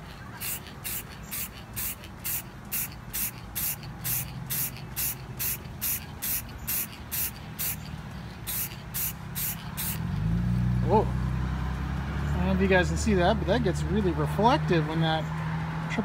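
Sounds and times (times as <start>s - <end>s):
aerosol can spraying: 0.4s - 10.1s.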